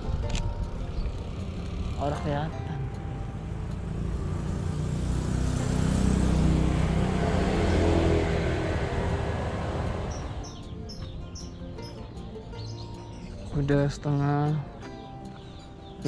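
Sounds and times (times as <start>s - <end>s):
passing vehicle engine: 0.0s - 11.2s.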